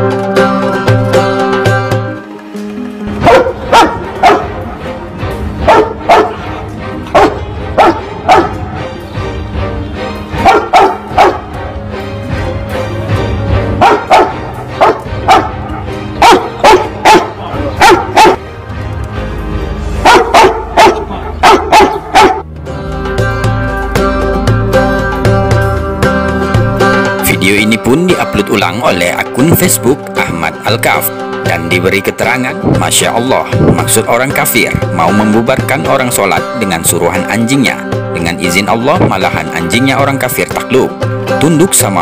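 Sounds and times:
low background music: 0.0 - 42.0
dog barking loudly: 3.2 - 4.6, 5.6 - 6.4, 7.1 - 8.7, 10.4 - 11.5, 13.8 - 18.4, 20.0 - 22.5.

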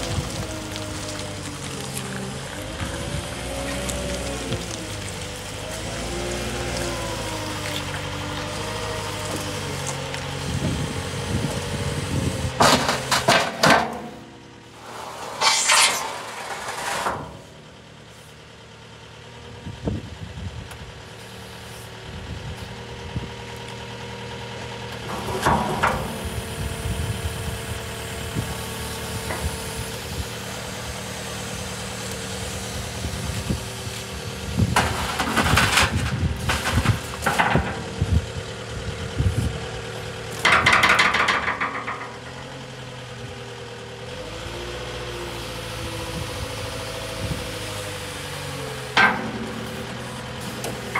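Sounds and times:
diesel engine running: 0.0 - 50.9
hydraulic noise: 12.5 - 17.7, 25.0 - 31.7, 48.7 - 50.9.

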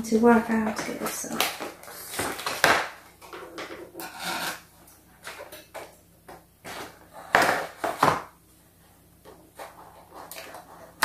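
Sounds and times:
cardboard packaging scraping: 1.6 - 5.4
scissors cutting cardboard: 4.0 - 4.6.

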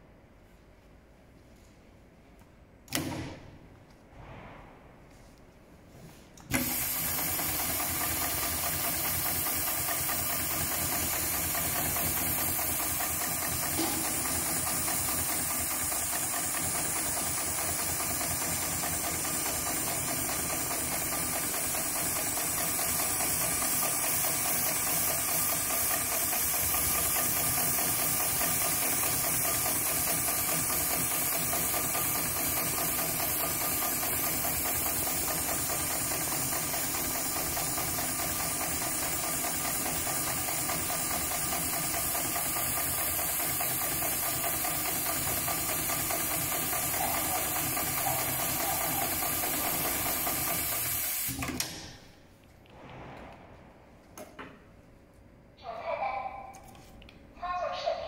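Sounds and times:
sewing machine needle clatter: 6.5 - 51.7.

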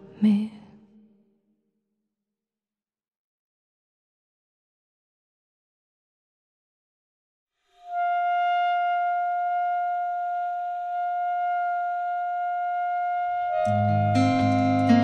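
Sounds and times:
wind instrument long note: 7.6 - 15.0
band with low bass notes: 13.7 - 15.0.

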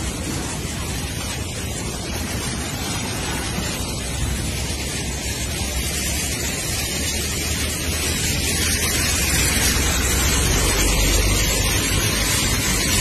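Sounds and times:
rushing flood water: 0.0 - 13.0.

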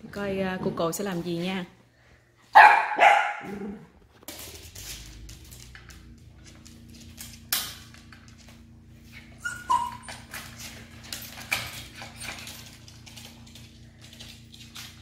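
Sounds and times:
low hum: 3.6 - 15.0
small dog whimpering and yelping: 9.3 - 10.3.

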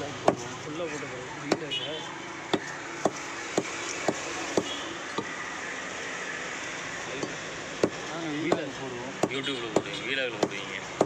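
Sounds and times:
steady background noise: 0.0 - 11.0
cleaver chopping meat on wood: 0.2 - 0.5, 1.5 - 1.7, 2.5 - 5.3, 7.8 - 11.0.

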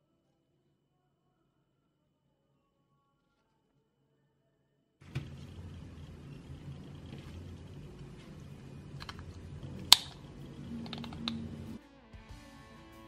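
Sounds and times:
low steady hum: 5.0 - 11.8
plastic clicks and taps: 9.0 - 11.6.

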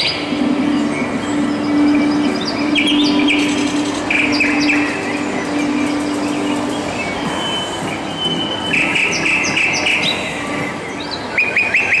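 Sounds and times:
steady low hum: 0.0 - 8.6
recorded birdsong chirps and trills: 0.0 - 12.0.

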